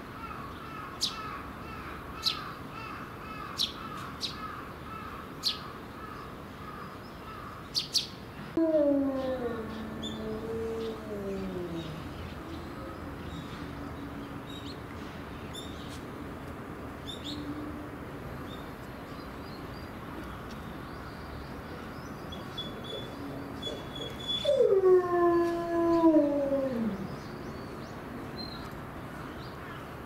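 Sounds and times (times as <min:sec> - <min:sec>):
wolves howling: 0:08.6 - 0:13.8, 0:23.7 - 0:27.2.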